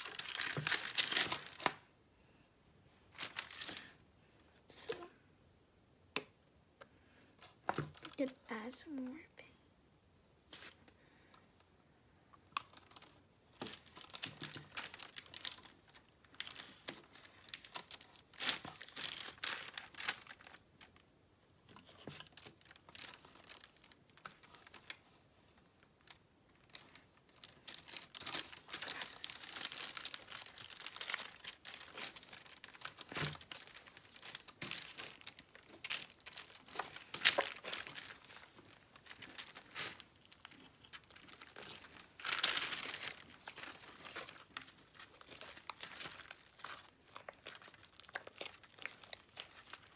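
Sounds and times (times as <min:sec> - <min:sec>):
sticky slime crackling: 0:26.6 - 0:49.9.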